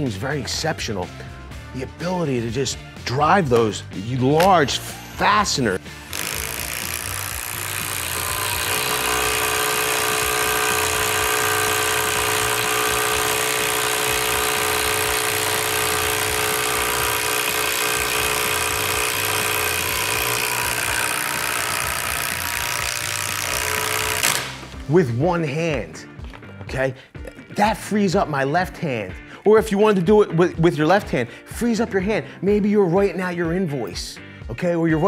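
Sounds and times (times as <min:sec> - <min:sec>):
impact driver hammering screw: 0:04.4 - 0:24.8.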